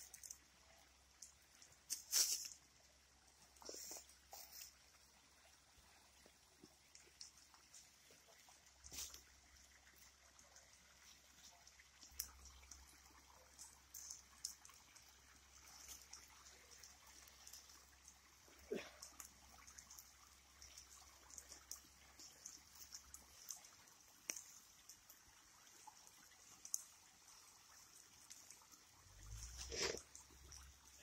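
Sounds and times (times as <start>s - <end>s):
fire crackling and popping: 0.0s - 5.2s, 6.1s - 31.0s
steady high hiss: 1.8s - 2.6s.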